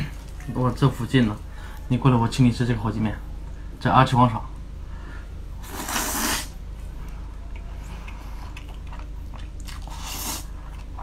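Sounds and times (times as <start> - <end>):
person slurping noodles: 5.6 - 6.6, 9.8 - 10.5
wet chewing clicks: 7.5 - 11.0.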